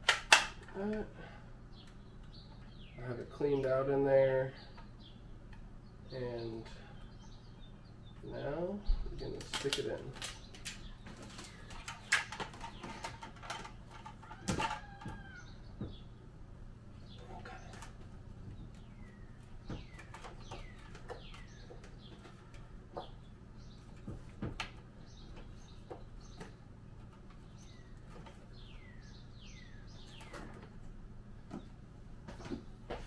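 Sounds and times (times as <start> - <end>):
low steady hum: 0.0 - 33.0
small birds chirping: 0.6 - 33.0
clicks and knocks of pump handling: 9.3 - 15.2.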